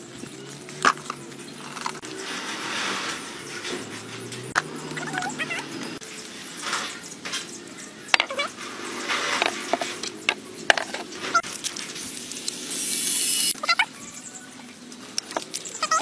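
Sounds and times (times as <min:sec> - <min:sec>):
seasoning sprinkling hiss: 0:11.4 - 0:13.6.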